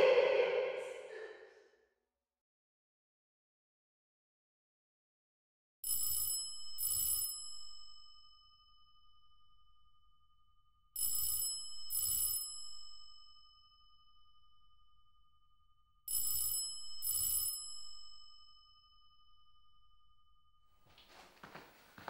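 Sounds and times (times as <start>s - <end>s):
telephone bell ringing: 5.9s - 7.7s, 11.0s - 12.8s, 16.1s - 18.0s.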